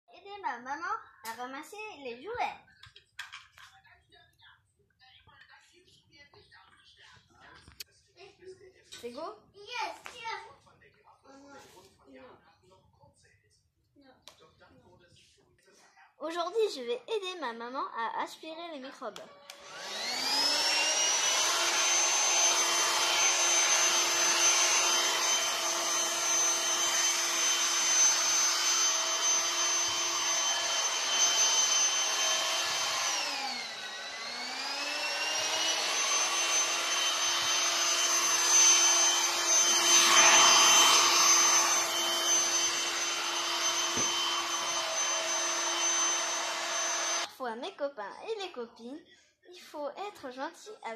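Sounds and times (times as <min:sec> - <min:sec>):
handheld vacuum motor whine: 0:19.4 - 0:47.3.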